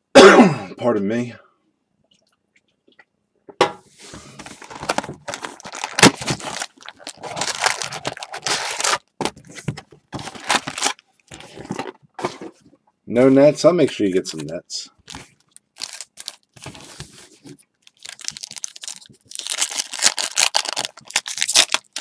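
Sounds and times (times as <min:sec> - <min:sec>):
card packs crinkling: 0:04.3 - 0:12.5, 0:13.8 - 0:22.0
cardboard box tearing: 0:04.8 - 0:09.0.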